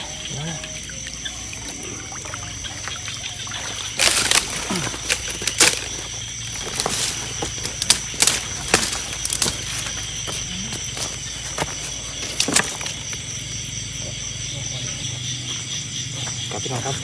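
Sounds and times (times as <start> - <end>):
shallow water splashing: 0.0 - 10.3.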